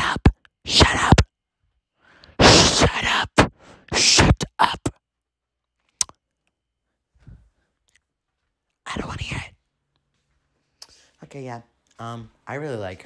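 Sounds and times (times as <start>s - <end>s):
person whispering: 0.0s - 1.3s, 2.4s - 5.0s, 8.8s - 9.7s.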